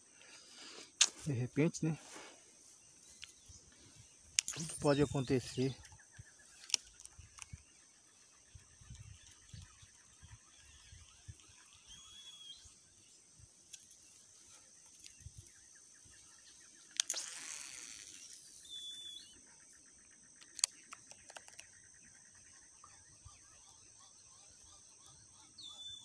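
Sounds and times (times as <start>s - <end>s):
whistled bird notes: 3.3s - 6.6s, 8.8s - 12.8s, 17.2s - 19.4s, 25.4s - 26.0s
fishing line running off reel: 9.2s - 12.7s, 17.0s - 19.3s.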